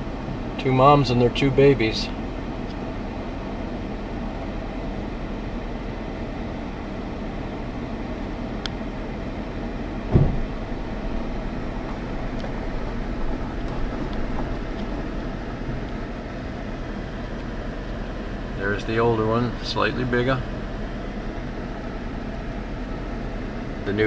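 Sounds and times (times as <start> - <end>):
car interior hum: 0.0 - 24.0
sharp thump: 10.1 - 10.7.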